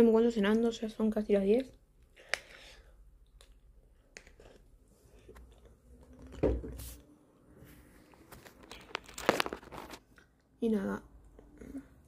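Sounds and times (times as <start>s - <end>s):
faint chewing: 1.5s - 6.4s.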